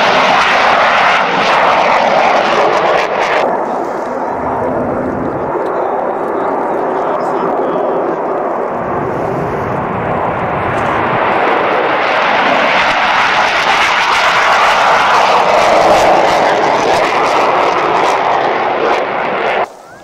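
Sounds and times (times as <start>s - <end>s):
jet fighters taking off: 0.0s - 20.0s.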